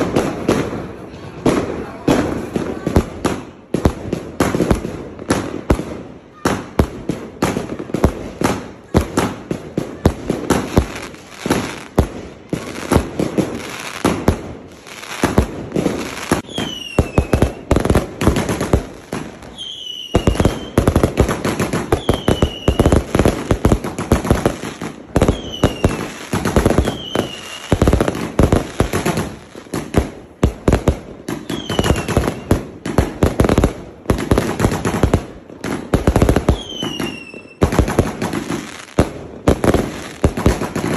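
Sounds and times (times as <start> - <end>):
firework shell bursts and crackling: 0.0 - 40.9
falling firework whistles: 16.0 - 17.9, 19.2 - 21.0, 21.8 - 23.1, 25.2 - 28.1, 31.4 - 32.6, 36.5 - 37.8.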